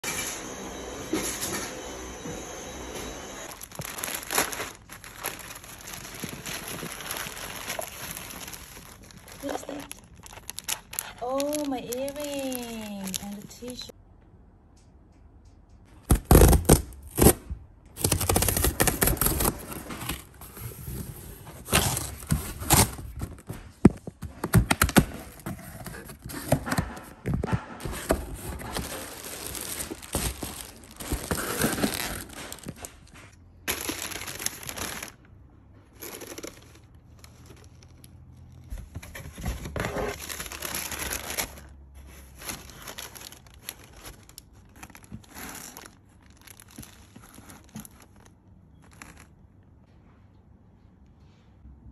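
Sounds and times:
plastic and paper crinkling: 3.4s - 13.9s, 18.0s - 49.8s
cardboard box tearing open: 16.1s - 17.4s, 18.0s - 23.4s, 27.8s - 32.9s, 39.0s - 41.7s.

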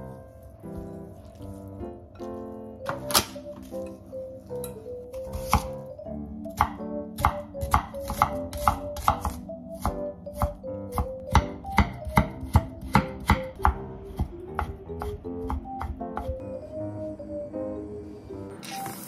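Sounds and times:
background music: 0.0s - 19.0s
knife chopping on wooden board: 6.6s - 14.7s.

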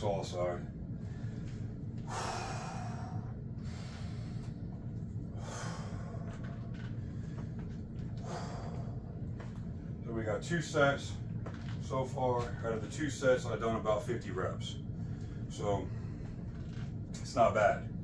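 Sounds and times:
low hum: 0.0s - 18.0s
man breathing deeply: 0.9s - 10.0s, 14.8s - 17.1s.

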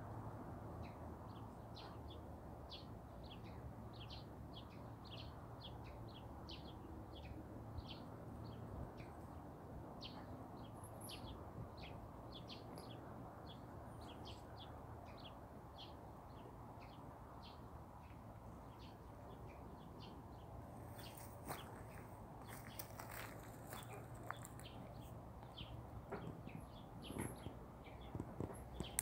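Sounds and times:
songbirds chirping: 0.2s - 29.0s
sharp clicks and rustles: 27.0s - 29.0s.

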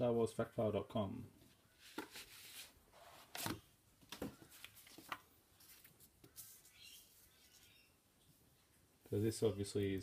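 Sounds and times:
magazine paper rustling: 1.8s - 7.8s.

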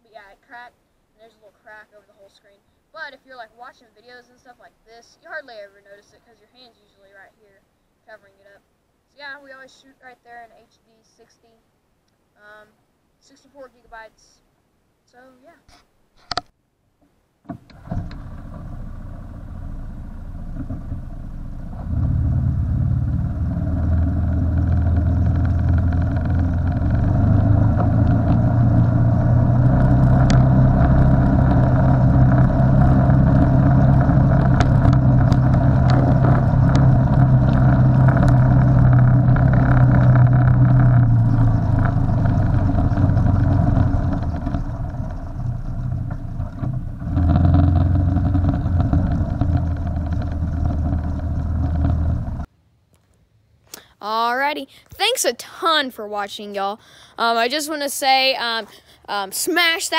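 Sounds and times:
vehicle engine running: 17.5s - 52.5s.

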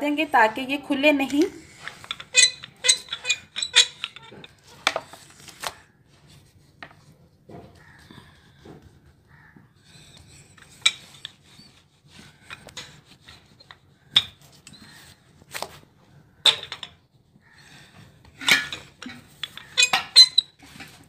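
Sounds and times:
rolling pin scraping dough: 1.6s - 7.2s, 7.8s - 15.4s, 17.5s - 21.0s.

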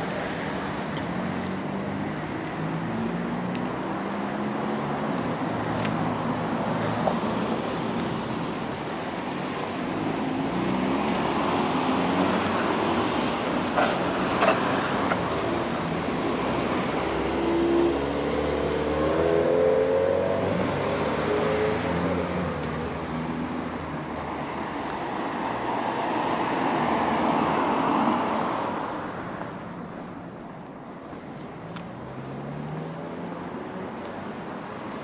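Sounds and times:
cars driving past: 0.0s - 30.4s, 31.0s - 35.0s.

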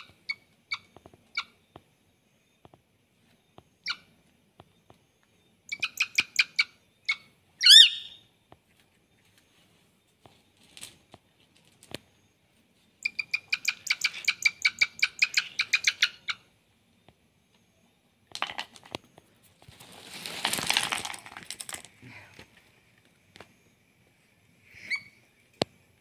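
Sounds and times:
rustling noise: 8.6s - 13.0s, 18.6s - 24.3s.

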